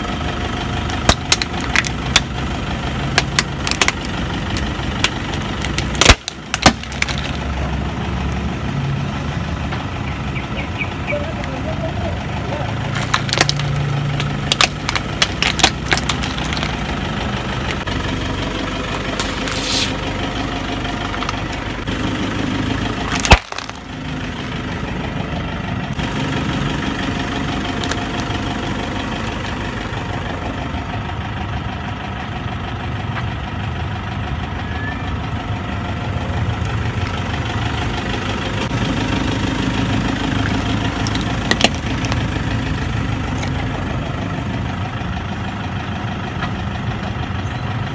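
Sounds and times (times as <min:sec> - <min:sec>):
car engine idling: 0:00.0 - 0:47.9
plastic cracking: 0:00.9 - 0:02.3, 0:03.2 - 0:07.4, 0:12.9 - 0:16.9, 0:23.1 - 0:23.9, 0:27.8 - 0:28.4, 0:40.4 - 0:43.6.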